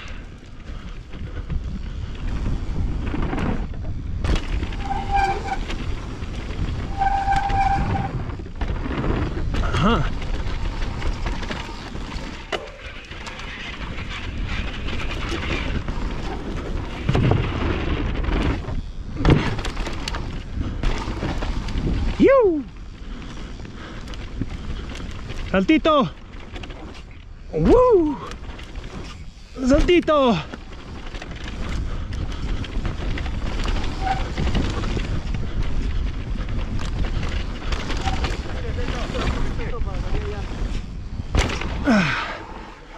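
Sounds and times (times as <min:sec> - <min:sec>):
bike rattling and clicking: 0:00.0 - 0:42.9
tyre and wind rush: 0:00.0 - 0:42.9
bike knocking over bumps: 0:02.9 - 0:06.8, 0:14.8 - 0:22.1, 0:32.4 - 0:42.3.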